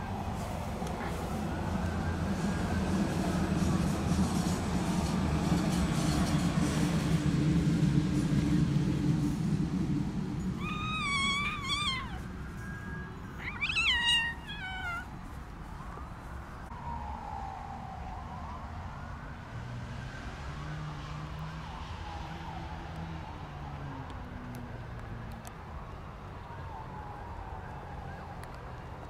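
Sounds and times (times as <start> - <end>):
kitten meowing: 10.6 - 15.1.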